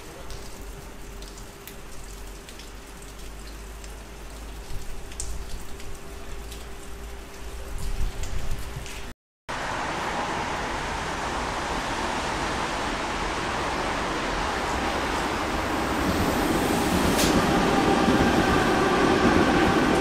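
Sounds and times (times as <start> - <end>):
raindrops ticking: 0.0 - 9.1
rain hissing: 9.5 - 20.0.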